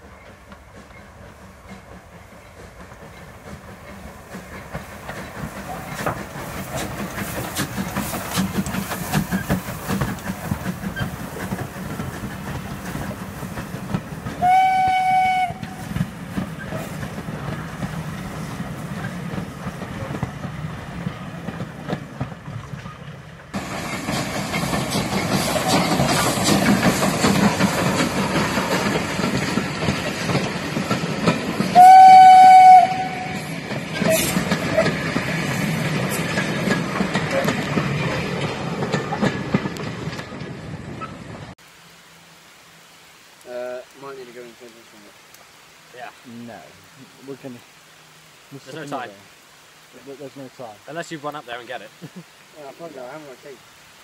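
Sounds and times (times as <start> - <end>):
steam train passing: 0.0 - 41.6, 49.9 - 54.0
steam whistle blast: 14.4 - 15.8, 31.8 - 33.5.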